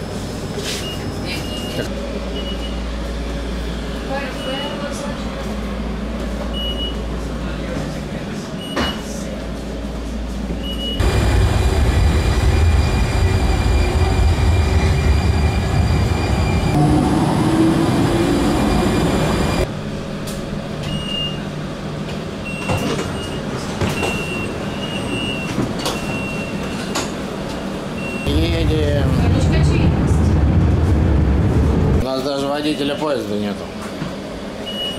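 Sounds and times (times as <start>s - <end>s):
low hum inside tram: 0.0s - 34.9s
train low rumble with high whine: 0.0s - 34.9s.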